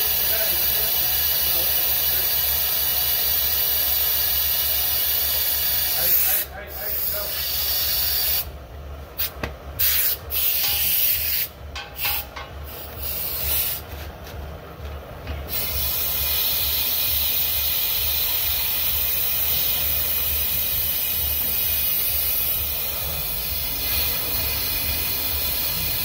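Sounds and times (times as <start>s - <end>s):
high-pressure water jet hissing: 0.0s - 8.5s, 9.2s - 13.9s, 15.5s - 26.0s
low steady hum: 8.5s - 24.5s.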